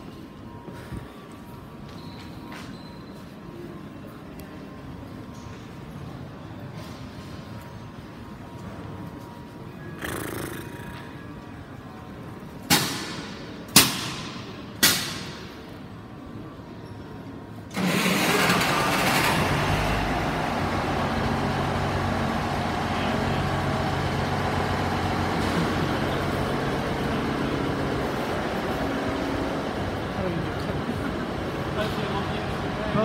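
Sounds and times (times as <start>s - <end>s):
train diesel engine idling: 17.7s - 33.0s.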